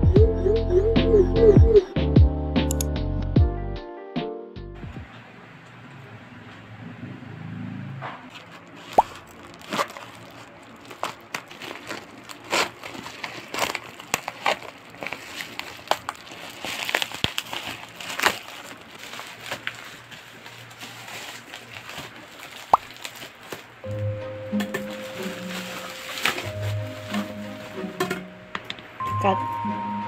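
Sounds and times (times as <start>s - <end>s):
sharp click: 2.7s - 2.9s
plastic packaging crinkling: 8.3s - 23.9s, 24.7s - 27.8s.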